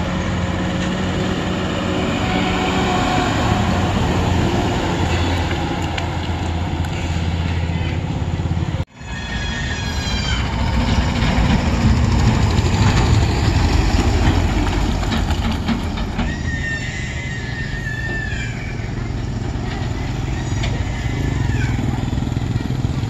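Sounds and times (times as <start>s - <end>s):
diesel engines droning: 0.0s - 23.0s.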